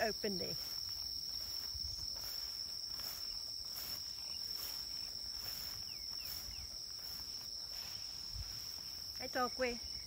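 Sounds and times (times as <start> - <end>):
insects trilling: 0.0 - 10.0
pulsing insect hiss: 0.0 - 10.0.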